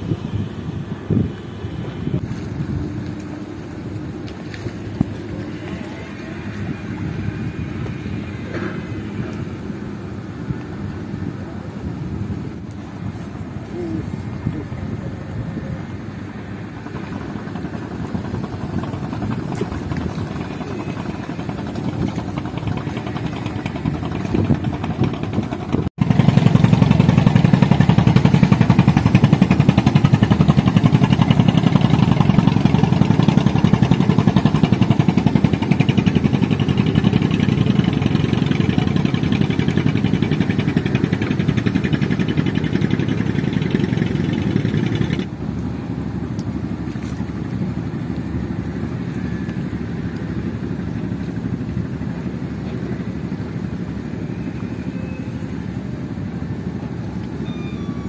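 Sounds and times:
engine running with fast pulsing: 0:12.9 - 0:58.0.

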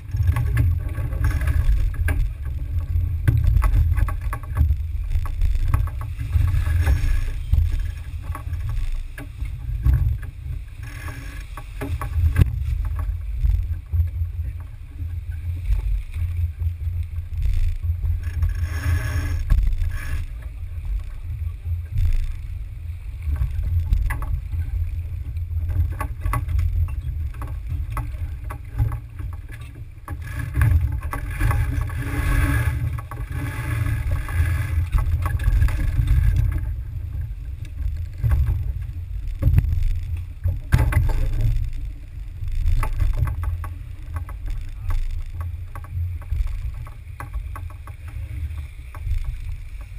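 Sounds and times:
low rumble of wind and water: 0:00.0 - 0:49.9
knocks and clicks from gear: 0:37.6 - 0:41.8.

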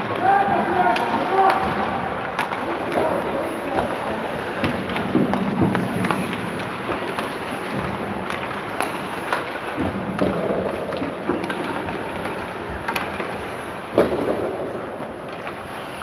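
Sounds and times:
skate blades scraping ice: 0:00.0 - 0:16.0
sticks clacking on pucks: 0:00.0 - 0:16.0.

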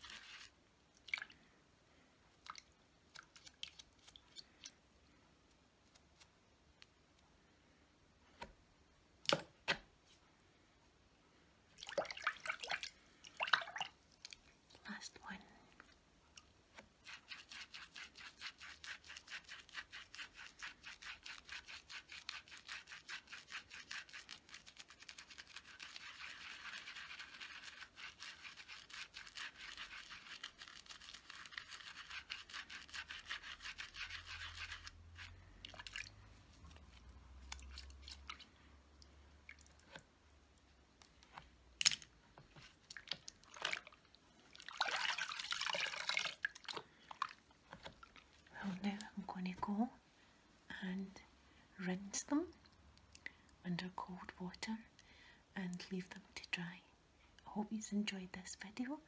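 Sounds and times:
wet brush scrubbing on silicone pad: 0:00.0 - 0:00.6, 0:16.7 - 0:38.6
small taps and drips: 0:02.4 - 0:04.8, 0:11.8 - 0:14.5, 0:35.6 - 0:48.3
water swishing: 0:43.0 - 0:47.4.

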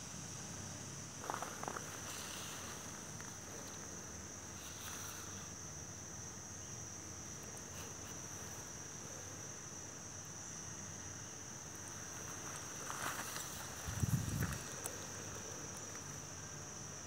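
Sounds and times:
high-pitched insect song: 0:00.0 - 0:17.0
faint rustles: 0:01.2 - 0:05.6, 0:07.3 - 0:09.4, 0:11.7 - 0:16.4.

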